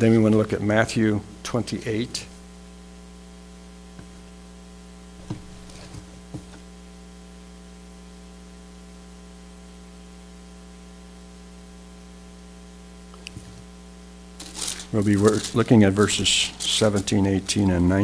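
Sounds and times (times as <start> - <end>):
electrical mains hum: 0.0 - 18.0
paper rustling and tapping: 5.2 - 6.7, 14.4 - 17.7.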